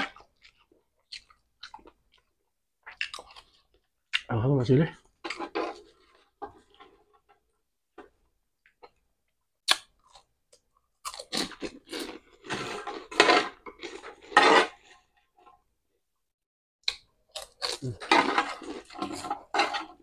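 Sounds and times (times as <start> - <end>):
crunching crispy food: 11.0 - 14.9, 17.3 - 19.6.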